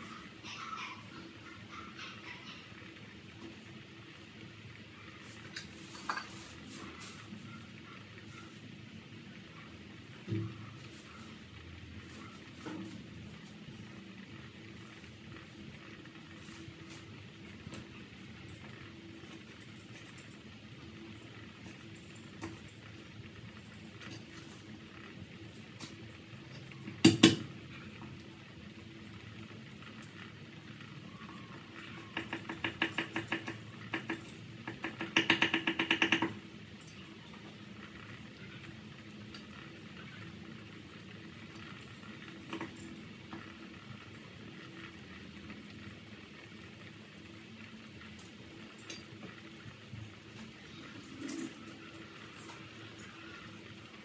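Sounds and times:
soup bubbling in a pot: 2.7 - 54.0
rapid clattering taps: 32.0 - 36.4.

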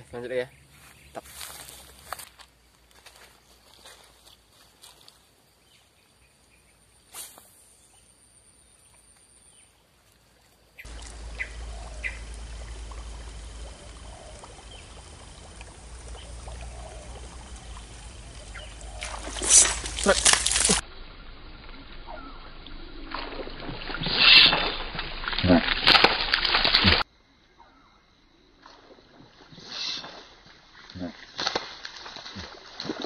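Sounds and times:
steady hiss with low rumble: 10.9 - 22.0.

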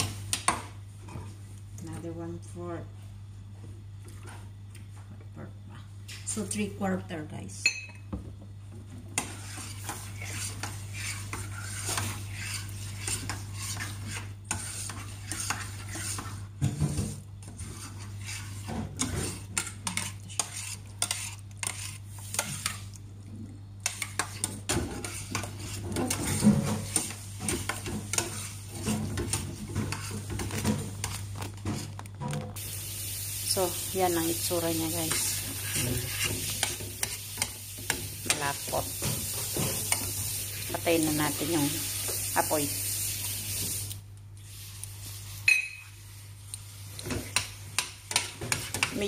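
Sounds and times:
metal spoon stirring in saucepan: 8.8 - 23.0, 23.8 - 32.0, 33.6 - 43.7, 47.0 - 49.0.

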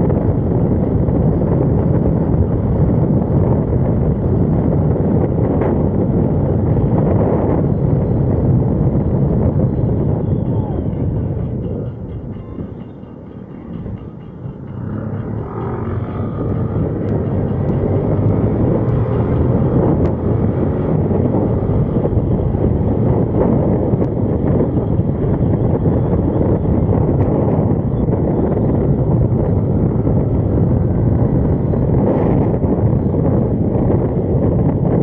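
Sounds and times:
wind and road noise: 0.0 - 35.0.

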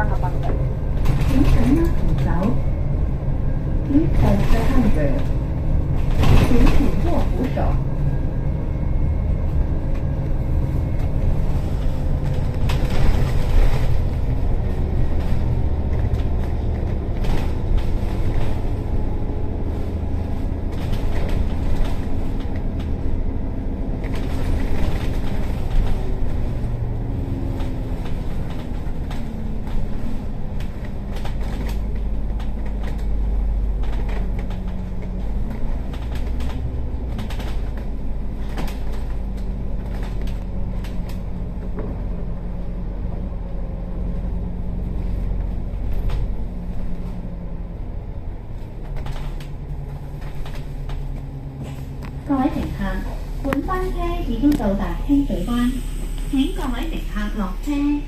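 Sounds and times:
bus engine and road rumble: 0.0 - 58.0.

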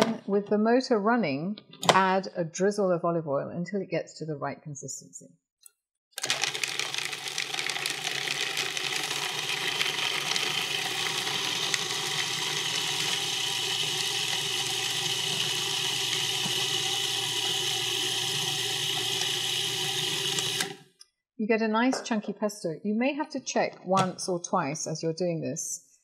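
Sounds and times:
food processor chopping: 6.2 - 20.9.

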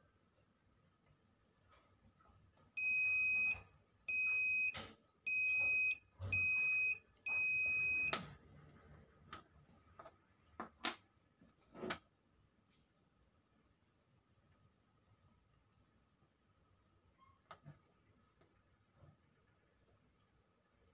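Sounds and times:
continuity tester beeping: 2.8 - 8.3.

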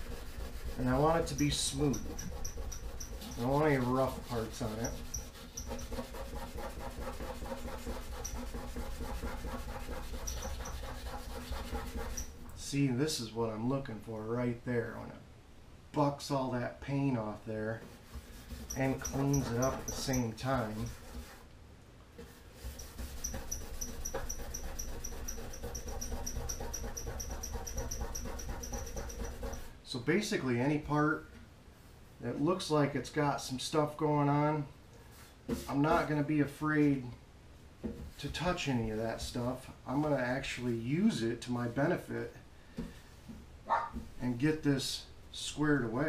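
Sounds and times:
steel wool scrubbing metal: 0.0 - 12.4, 18.2 - 21.4, 22.6 - 29.7.

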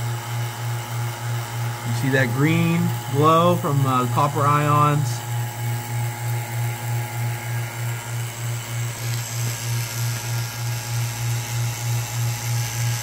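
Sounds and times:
low electrical hum: 0.0 - 13.0.

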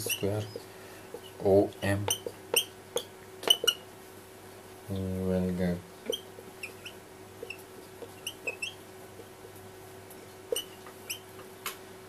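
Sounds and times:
marker squeaking on whiteboard: 0.0 - 1.4, 2.0 - 3.9, 6.0 - 9.3, 10.5 - 11.3
faint steady hum: 0.0 - 12.0.

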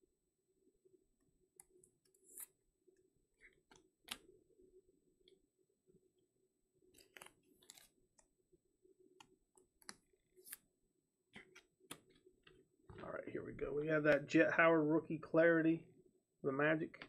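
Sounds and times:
cards clicking and scraping in plastic: 7.0 - 7.9.

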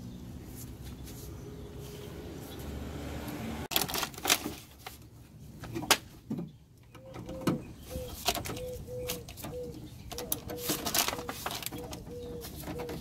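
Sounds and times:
dove cooing: 7.0 - 13.0.

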